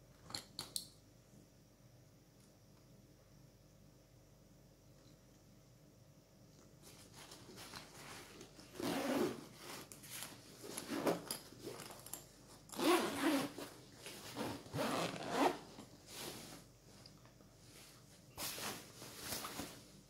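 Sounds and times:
backpack zippers rasping: 8.7 - 9.5, 12.7 - 13.7, 14.4 - 15.6.

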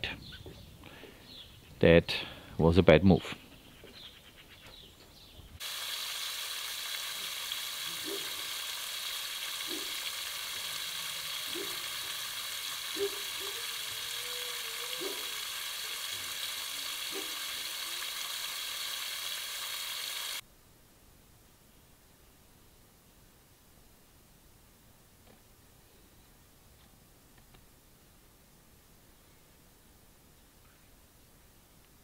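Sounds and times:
steady hiss from a leak: 5.6 - 20.4.

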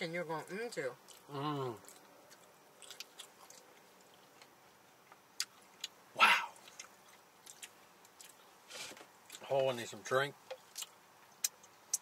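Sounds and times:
mouth clicks and chewing: 1.0 - 4.5, 5.1 - 8.5, 10.5 - 12.0.

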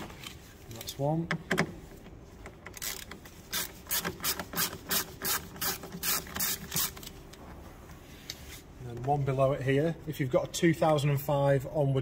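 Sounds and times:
ratchet clicking: 2.7 - 7.1.

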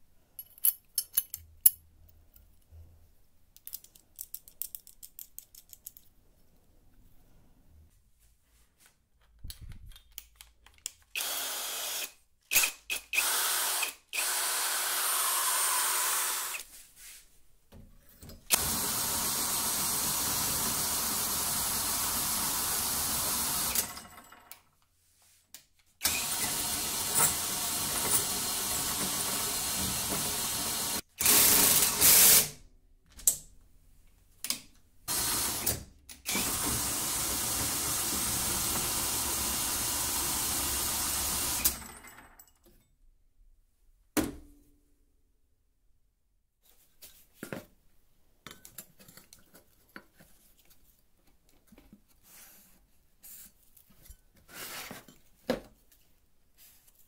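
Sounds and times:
cordless drill running in bursts: 11.2 - 12.1, 13.2 - 16.6, 18.5 - 23.9, 26.0 - 32.5, 35.1 - 35.7, 36.3 - 41.8.

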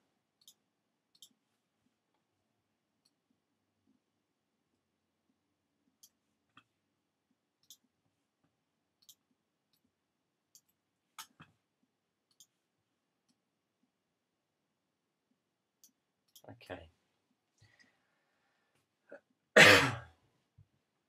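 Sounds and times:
computer mouse clicks: 0.4 - 1.4, 7.6 - 7.9, 9.0 - 9.9, 10.5 - 11.5, 12.3 - 12.6.

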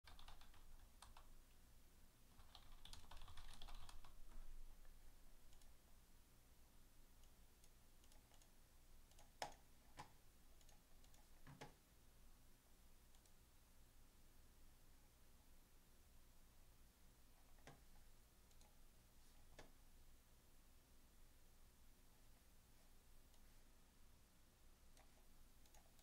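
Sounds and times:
keyboard typing: 0.1 - 1.3, 2.3 - 5.8, 7.2 - 8.5, 9.1 - 11.8, 17.4 - 18.8, 24.9 - 26.0.

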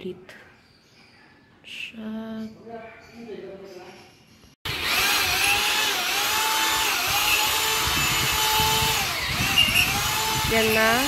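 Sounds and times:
electric drill whining: 4.7 - 11.0.

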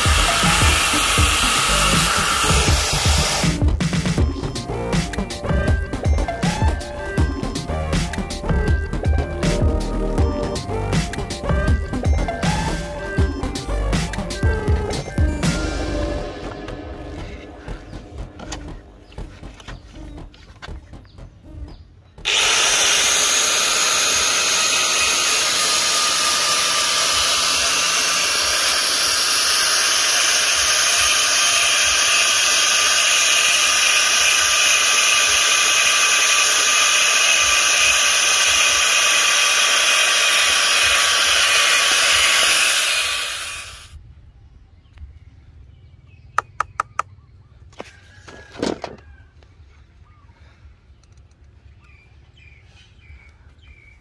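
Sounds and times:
angle grinder sanding plastic: 0.0 - 3.6, 22.2 - 44.0.

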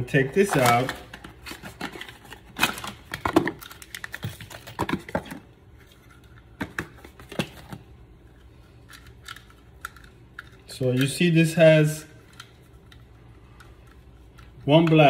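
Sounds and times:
cardboard packaging rustling: 0.3 - 6.3
sharp clicks and crinkles: 8.8 - 11.2.

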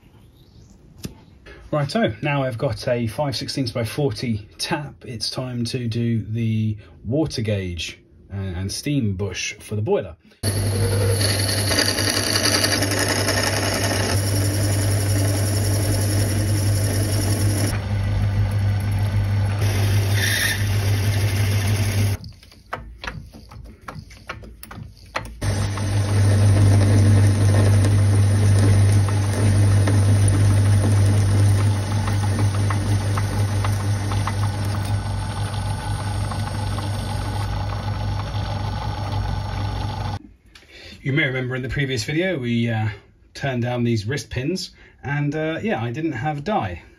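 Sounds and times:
metal lathe running: 10.4 - 22.2, 25.0 - 40.2.

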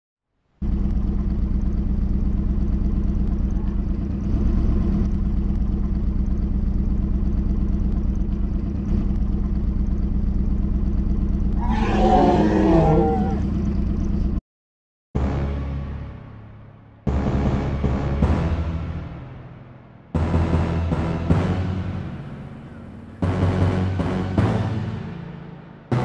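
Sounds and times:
motorcycle engine running: 0.6 - 14.4, 15.2 - 26.0
loud growling: 11.6 - 13.5.

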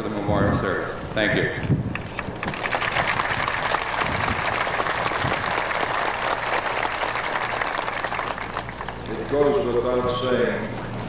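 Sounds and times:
large audience applauding: 2.2 - 9.3.

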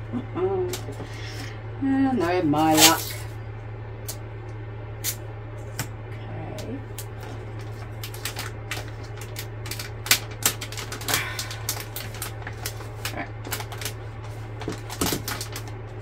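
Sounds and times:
steady low hum: 0.0 - 16.0
resin sheet crackling and clicking: 6.9 - 15.9.

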